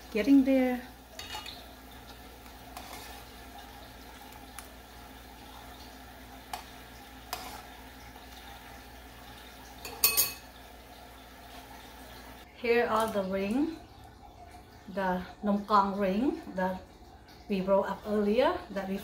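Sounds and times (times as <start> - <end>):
syrup bubbling in a pot: 0.0 - 19.0
metal spoon clinking against pot: 1.2 - 1.6, 9.8 - 10.5.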